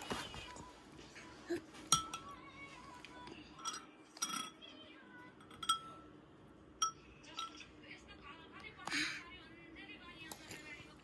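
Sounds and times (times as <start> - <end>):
metal spoon clinking on glass bowl: 1.9 - 2.4, 3.5 - 4.7, 5.4 - 6.1, 6.8 - 7.7.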